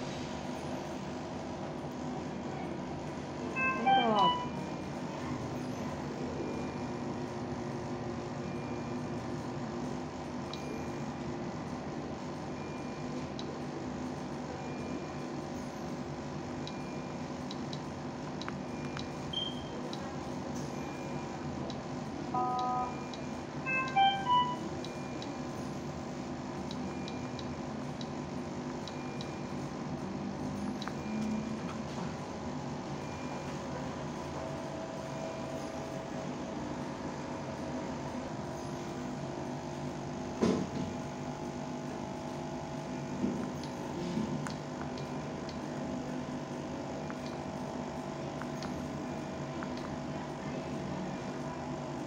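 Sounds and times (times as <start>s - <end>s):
steady background hum: 0.0s - 52.0s
electronic beeps: 3.6s - 4.6s, 18.8s - 19.8s, 22.4s - 25.3s.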